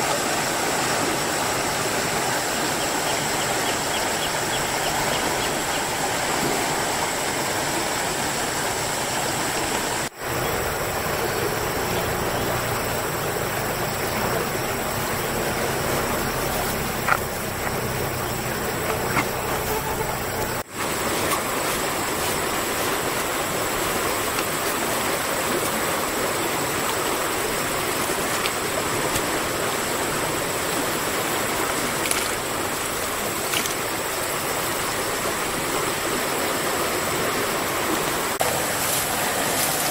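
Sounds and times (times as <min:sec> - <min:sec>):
stream water rushing: 0:00.0 - 0:39.9.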